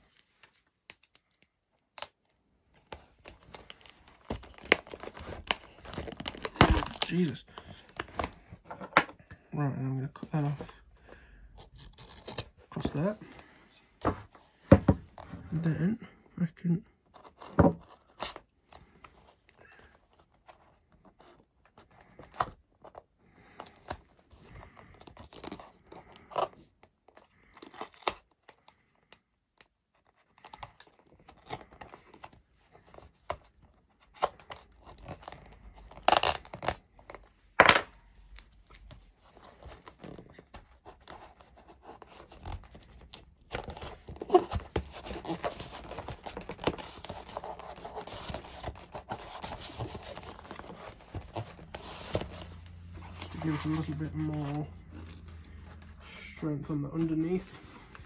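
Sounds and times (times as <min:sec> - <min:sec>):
tape tearing: 0:03.2 - 0:08.3, 0:34.2 - 0:37.2, 0:38.3 - 0:55.8
tape rustling rub: 0:38.0 - 0:56.4.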